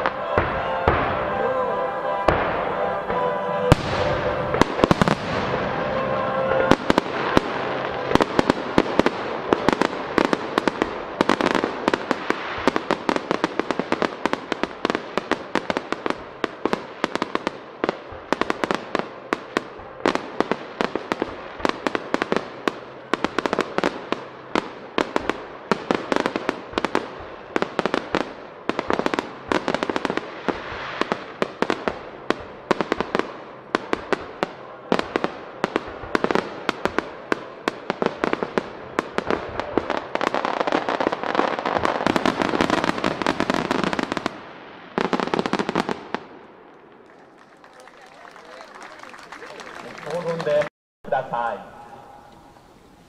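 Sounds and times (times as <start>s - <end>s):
music: 0.0s - 11.0s
fireworks crackle: 0.0s - 51.5s.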